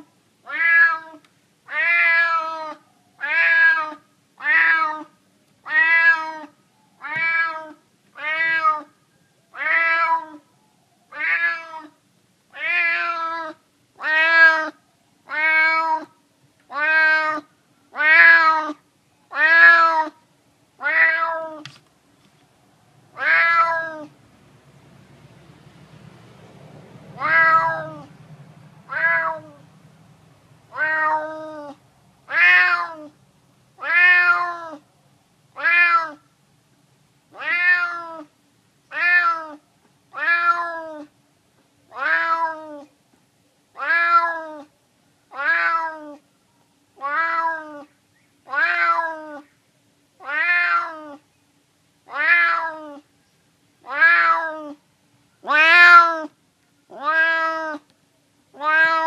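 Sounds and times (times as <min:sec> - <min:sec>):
cat meowing: 0:00.5 - 0:10.5, 0:11.1 - 0:12.0, 0:12.6 - 0:20.2, 0:20.8 - 0:21.7, 0:23.2 - 0:24.1, 0:27.2 - 0:28.1, 0:28.9 - 0:29.6, 0:30.7 - 0:33.2, 0:33.8 - 0:34.8, 0:35.6 - 0:36.2, 0:37.3 - 0:38.3, 0:38.9 - 0:41.1, 0:41.9 - 0:42.9, 0:43.8 - 0:44.7, 0:45.3 - 0:46.2, 0:47.0 - 0:47.9, 0:48.5 - 0:49.4, 0:50.2 - 0:51.2, 0:52.1 - 0:53.1, 0:53.8 - 0:54.8, 0:55.4 - 0:56.3, 0:56.9 - 0:57.9, 0:58.6 - 0:59.0.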